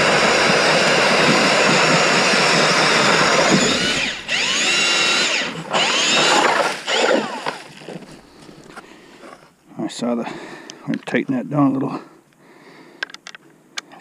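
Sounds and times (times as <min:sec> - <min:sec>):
drill grinding through ice: 0:00.0 - 0:08.8.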